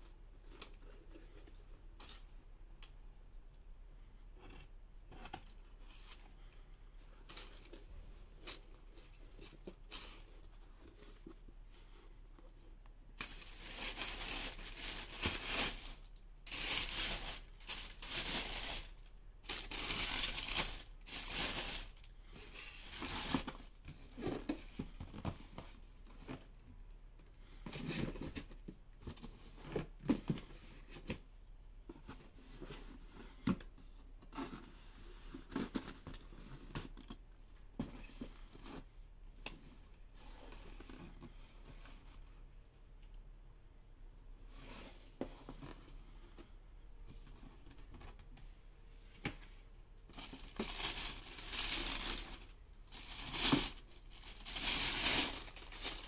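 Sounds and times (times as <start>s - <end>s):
tissue paper rustling: 13.2s - 23.7s, 50.1s - 56.0s.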